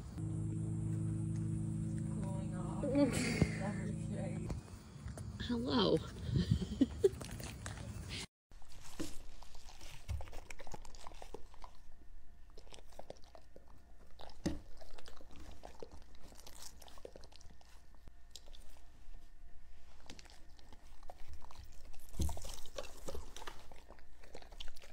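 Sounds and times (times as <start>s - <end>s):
dogs licking and chewing: 6.9s - 24.9s.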